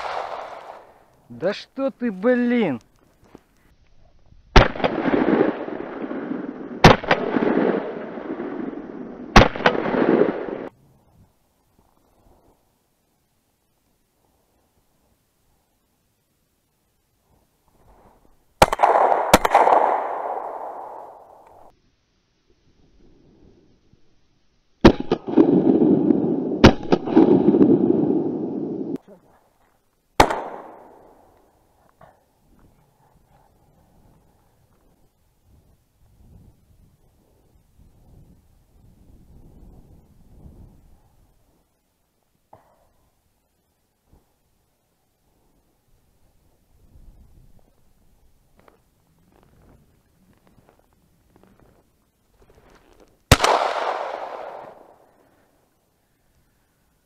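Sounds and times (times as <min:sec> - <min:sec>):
shotgun shots: 0:00.0 - 0:01.0, 0:04.6 - 0:08.7, 0:09.3 - 0:10.7, 0:18.6 - 0:21.7, 0:24.8 - 0:28.5, 0:30.2 - 0:31.2, 0:53.3 - 0:55.1.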